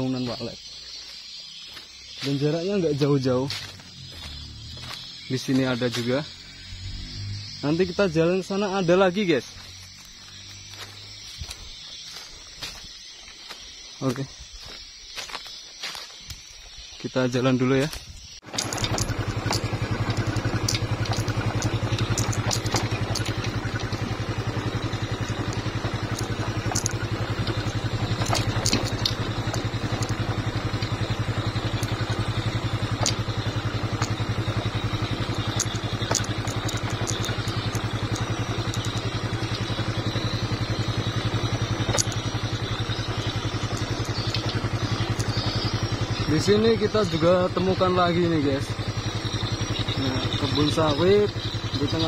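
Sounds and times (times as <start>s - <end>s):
small motorcycle engine: 0.0s - 13.6s, 18.2s - 52.0s
knocks and rattles: 18.4s - 47.7s.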